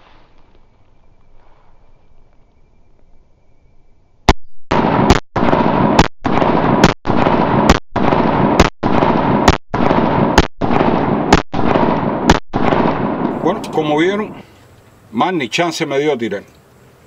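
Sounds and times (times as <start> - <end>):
pistol shots: 4.3 - 13.7.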